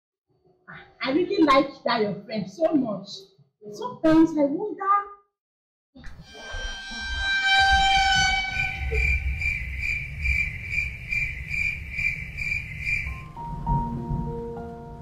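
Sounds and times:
pulsing high tone: 6.1s - 13.1s
low rumble: 6.4s - 14.6s.

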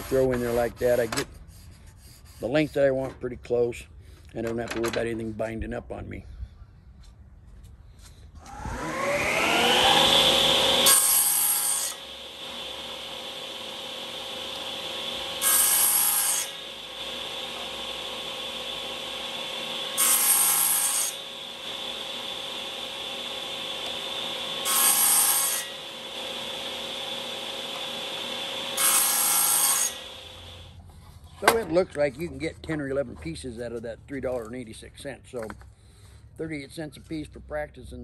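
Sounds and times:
saw blade cutting wood: 0.0s - 3.1s, 8.4s - 30.7s
table saw motor whine: 8.4s - 30.7s.

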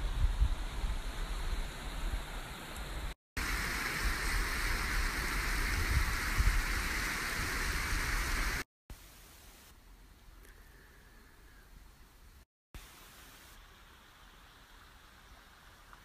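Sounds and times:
wind rumble on microphone: 0.0s - 8.6s
outdoor rushing hiss: 0.0s - 9.8s, 12.4s - 16.0s.

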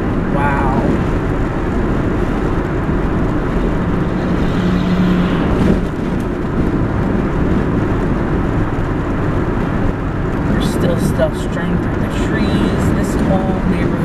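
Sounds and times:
truck passing by: 0.0s - 10.2s
car road and engine noise: 0.0s - 14.0s.

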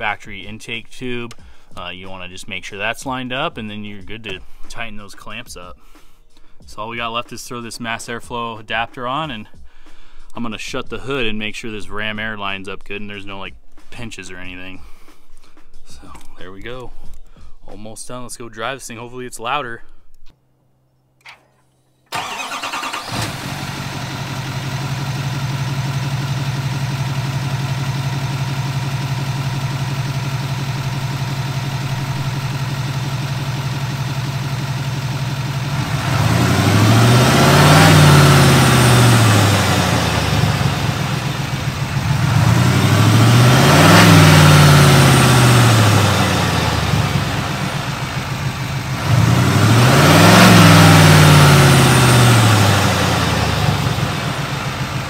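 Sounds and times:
diesel engine starting and idling: 22.1s - 55.0s
engine revving: 22.2s - 55.0s.

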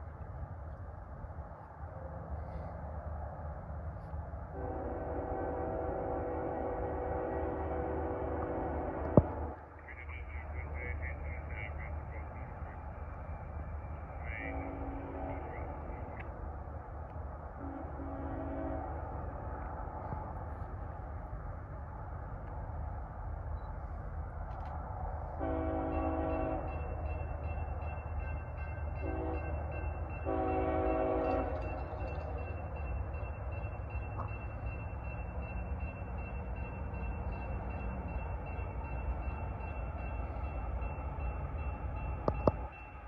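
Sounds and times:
train rumbling: 0.0s - 43.0s
locomotive air horn: 4.6s - 9.4s, 14.4s - 15.7s, 17.6s - 19.0s, 25.4s - 26.7s, 29.0s - 29.5s, 30.2s - 31.7s.

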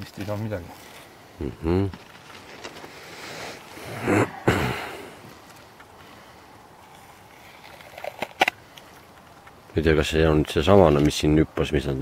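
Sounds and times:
person breathy vocal sounds: 1.4s - 1.9s, 3.3s - 5.2s.

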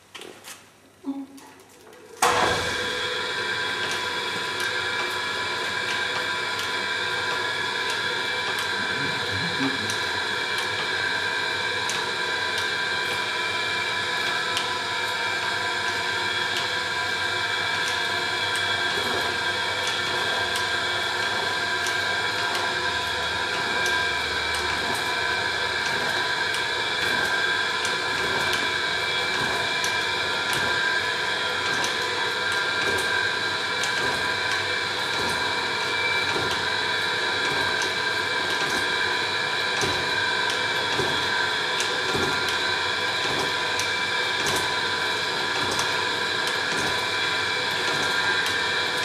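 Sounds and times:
steady hum: 8.8s - 10.3s.

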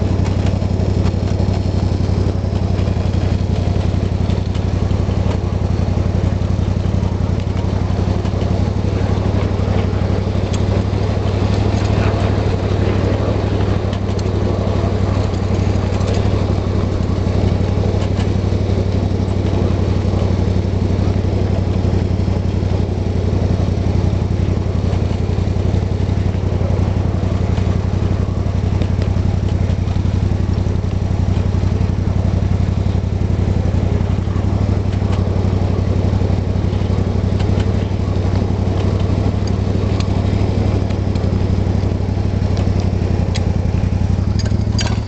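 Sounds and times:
small locomotive engine running: 0.0s - 45.0s
light clicks: 42.6s - 45.0s.

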